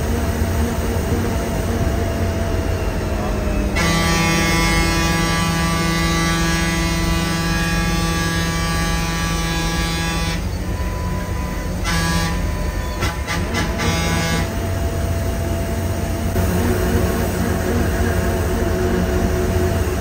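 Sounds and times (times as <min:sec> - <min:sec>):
bus engine rumble: 0:00.0 - 0:20.0
vehicle horn blasts and toots: 0:03.8 - 0:14.6.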